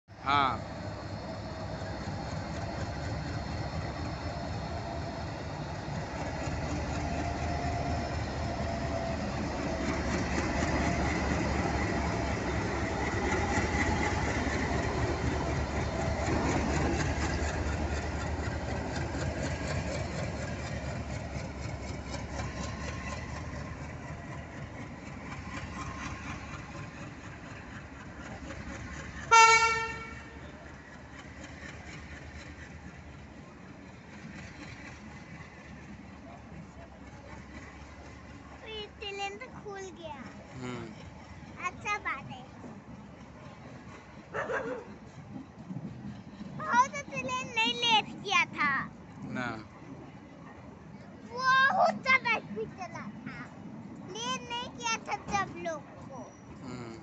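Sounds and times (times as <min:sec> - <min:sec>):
diesel locomotive engine under load: 0:00.1 - 0:57.0
train wheels clattering over rails: 0:00.7 - 0:49.2
train horn blast: 0:29.3 - 0:30.4.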